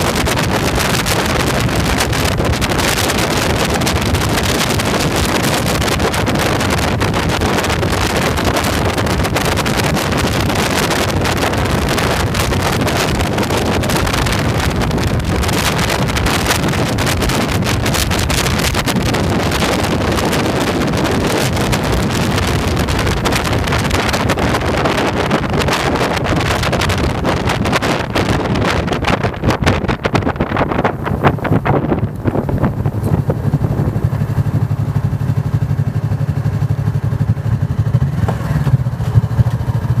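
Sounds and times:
motorcycle engine running: 0.0 - 40.0
road noise: 0.0 - 40.0
wind rushing over microphone: 0.0 - 40.0.

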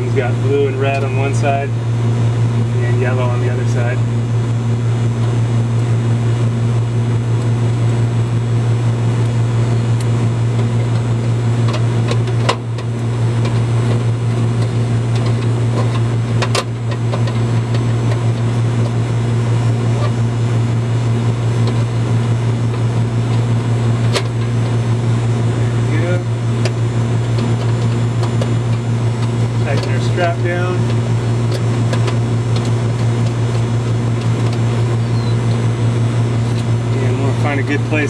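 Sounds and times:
low mechanical hum: 0.0 - 38.0.

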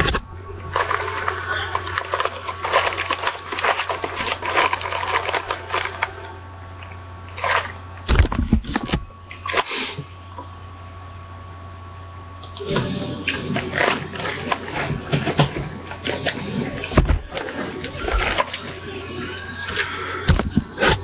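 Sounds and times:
steady low hum: 0.0 - 21.0
plastic wrap crinkling: 0.6 - 6.3.

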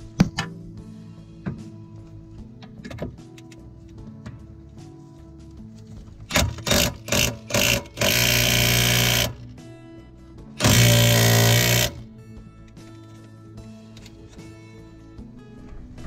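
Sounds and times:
background music: 0.0 - 16.0
impact wrench whirring: 6.3 - 9.4, 10.6 - 12.0.

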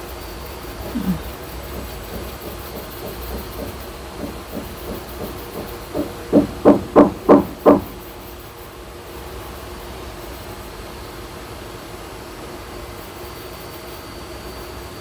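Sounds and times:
faint tapping and handling: 0.8 - 7.9
hard object knocking with ringing: 0.8 - 8.0.

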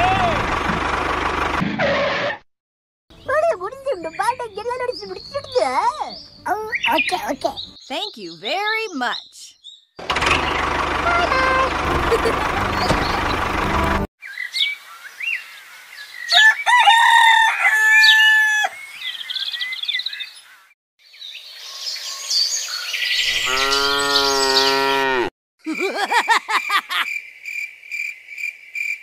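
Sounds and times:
birds chirping: 3.1 - 16.8, 18.0 - 25.3
rooster crowing: 16.3 - 18.8.

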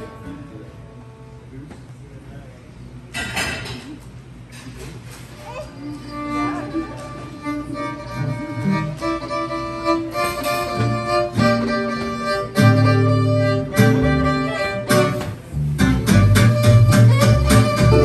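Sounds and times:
fiddle melody: 5.8 - 18.0
acoustic guitars strumming: 8.2 - 18.0.

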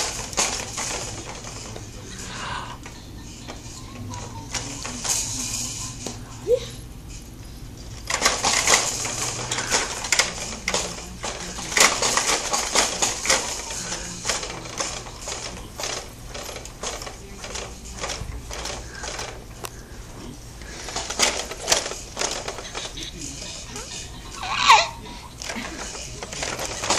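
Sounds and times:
plastic clicks and rattles: 0.0 - 2.0, 7.9 - 19.9, 20.6 - 26.9.

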